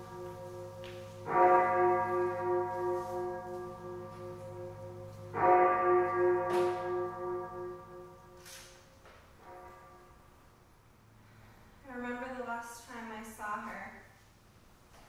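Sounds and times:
large bell ringing: 0:00.0 - 0:10.3.

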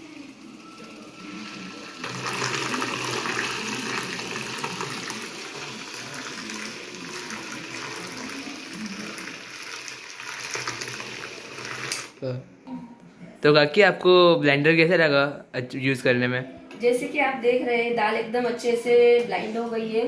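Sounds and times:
hand blender motor running: 0:01.2 - 0:12.1.

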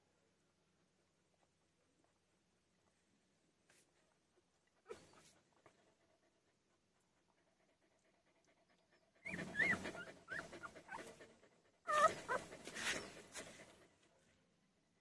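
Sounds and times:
dog panting: 0:04.9 - 0:14.3
puppies squeaking and whimpering: 0:09.2 - 0:11.2, 0:11.9 - 0:13.4.

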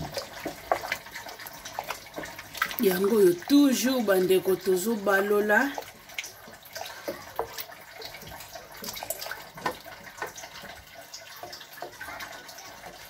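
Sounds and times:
sauce sloshing: 0:00.0 - 0:13.0.

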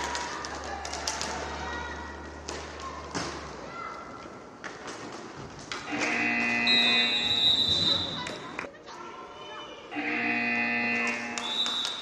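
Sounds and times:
hockey sticks tapping puck: 0:00.0 - 0:07.0
steady buzzer: 0:10.0 - 0:11.4.

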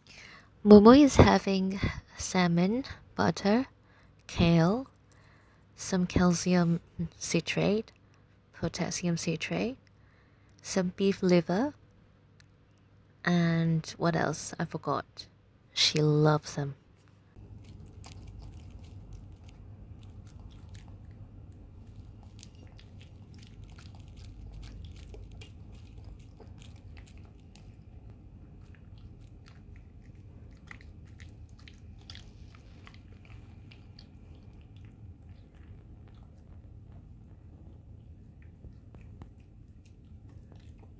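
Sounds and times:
low steady hum: 0:00.0 - 0:40.9
dog chewing: 0:17.4 - 0:40.9.

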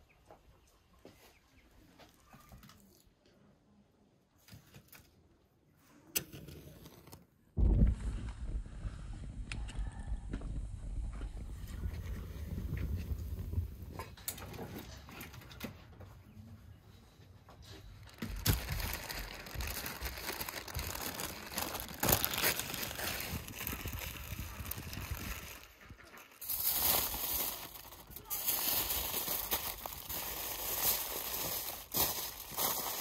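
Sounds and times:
low rumble: 0:07.6 - 0:14.3
paper rustling and crinkling: 0:17.6 - 0:33.0.

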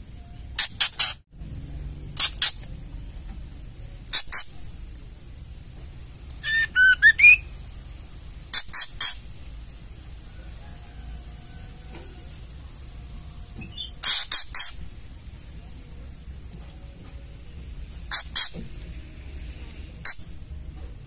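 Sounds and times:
bird harsh chatter calls: 0:02.2 - 0:02.7, 0:04.1 - 0:04.7, 0:06.4 - 0:07.6, 0:08.5 - 0:09.4, 0:13.6 - 0:14.9, 0:18.1 - 0:18.6
bird whistled notes: 0:06.4 - 0:07.5, 0:13.6 - 0:14.7.

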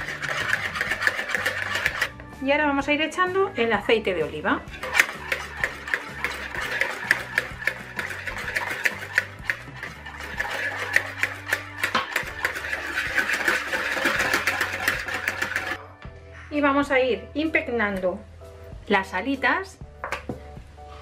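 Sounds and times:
whisk clicking against plastic bowl: 0:00.0 - 0:02.1, 0:04.8 - 0:15.8.

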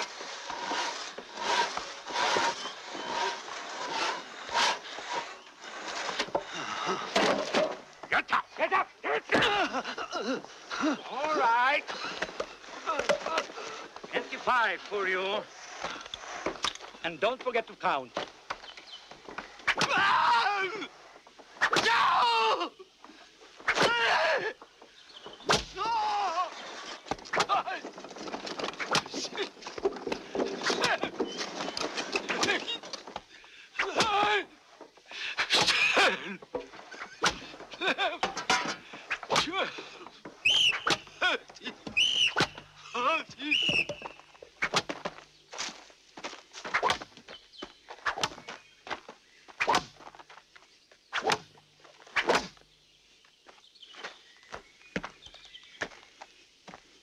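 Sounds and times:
hand saw cutting log: 0:00.0 - 0:06.3.

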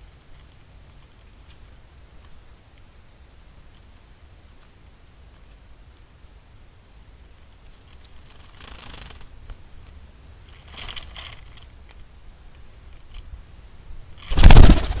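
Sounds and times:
bird wingbeats taking off: 0:08.2 - 0:09.4, 0:14.2 - 0:15.0.

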